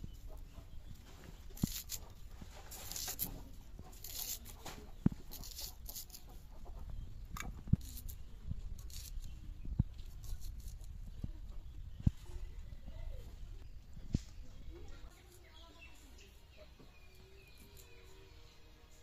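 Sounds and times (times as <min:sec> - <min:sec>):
onion being sliced: 0:01.4 - 0:06.3.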